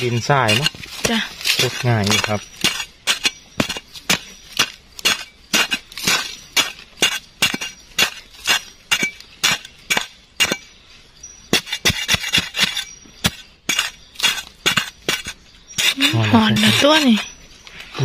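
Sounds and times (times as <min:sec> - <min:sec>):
digging tool chopping into soil: 0:00.0 - 0:10.6.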